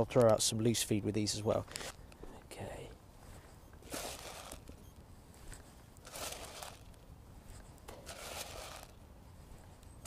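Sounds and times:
feed pellets rattling: 3.8 - 4.7, 6.0 - 7.0, 7.9 - 9.0.

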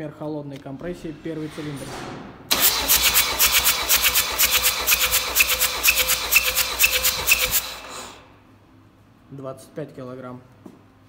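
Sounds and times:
starter motor cranking diesel engine: 2.5 - 8.3.

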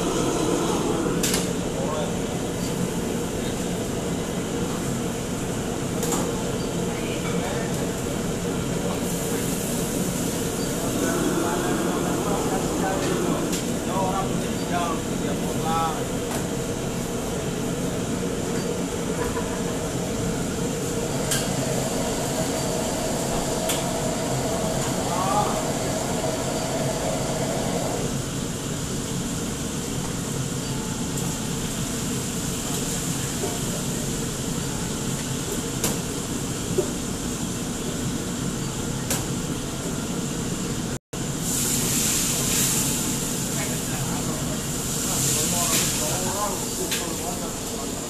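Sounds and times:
extraction hood fan roaring: 0.0 - 3.4, 9.4 - 14.4, 19.4 - 29.5
gas wok range roaring: 0.0 - 5.9, 7.9 - 38.5, 39.4 - 48.0.

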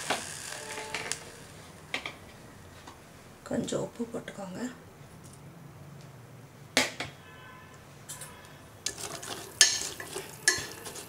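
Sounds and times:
ladle clinking and scraping pot: 8.1 - 11.0.

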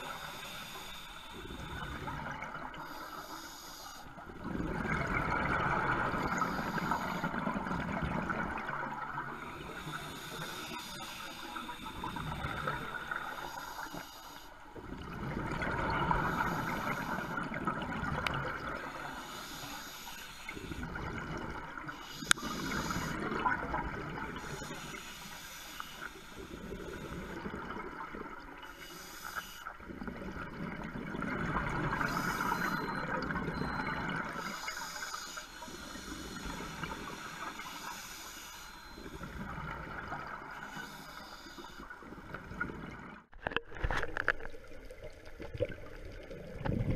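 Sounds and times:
scuba regulator hissing inhales: 0.0 - 2.1, 2.8 - 4.2, 6.3 - 7.4, 9.4 - 14.6, 18.9 - 20.8, 21.9 - 23.4, 24.4 - 27.3, 28.7 - 29.7, 34.4 - 39.3, 40.5 - 41.9
bubbling exhales underwater: 4.4 - 6.5, 45.3 - 46.9.

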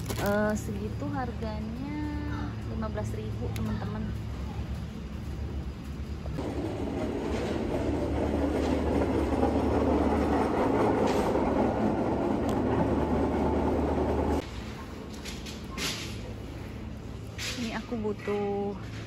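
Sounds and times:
shopping trolley rattling: 0.0 - 1.2.

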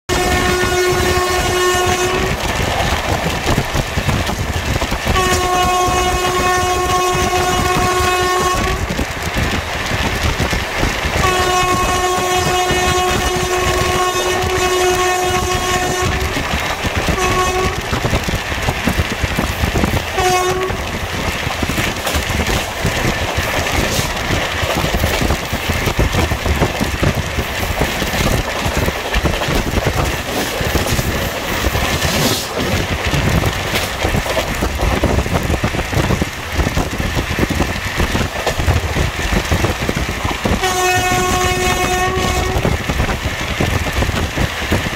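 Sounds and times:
locomotive horn blasts: 0.1 - 2.5, 5.1 - 9.0, 11.2 - 17.9, 20.2 - 20.9, 40.5 - 42.7
train wheels rumbling on rails: 0.1 - 44.9.

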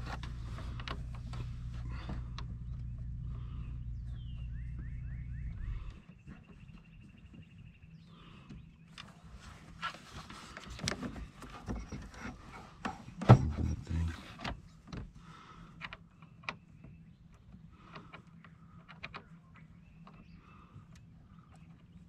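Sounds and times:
plastic knocks scrapes and clicks: 9.9 - 15.1.

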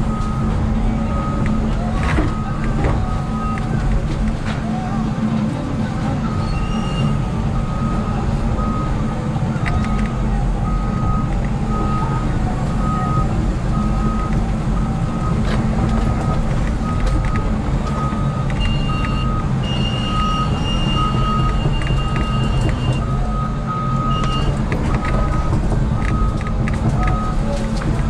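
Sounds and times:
excavator diesel engine running: 0.0 - 28.0
motion alarm beeping: 12.8 - 27.4.

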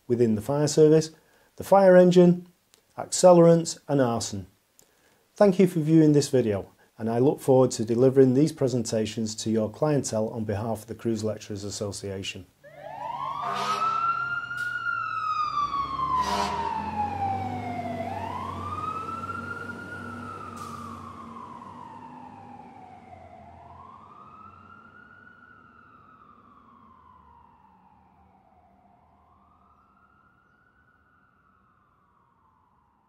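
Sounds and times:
sharp siren blast: 12.6 - 33.0
siren wailing: 12.6 - 33.0.

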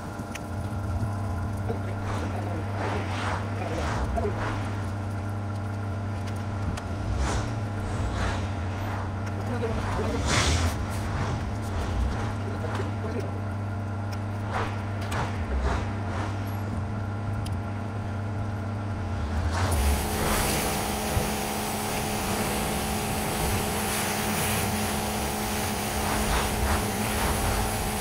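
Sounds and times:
pressure washer motor hum: 18.6 - 28.0
water spray hiss: 19.5 - 28.0.

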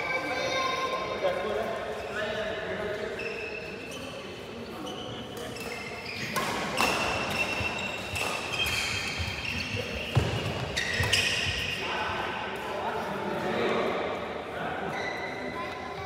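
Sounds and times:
sneaker squeaks on court: 3.0 - 11.8.

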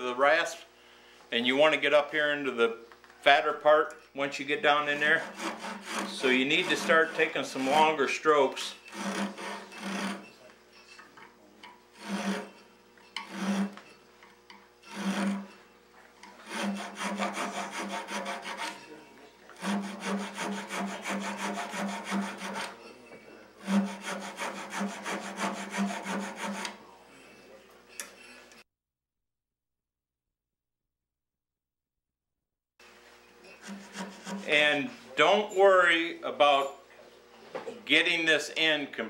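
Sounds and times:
rasp filing wood: 4.8 - 10.3, 12.0 - 12.6, 13.2 - 13.9, 14.9 - 15.6, 16.3 - 22.8, 23.6 - 26.8, 33.5 - 34.7.

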